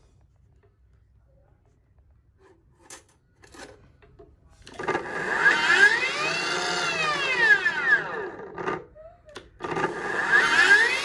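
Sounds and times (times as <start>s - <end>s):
cut-off saw whining: 5.0s - 8.4s, 9.7s - 11.0s.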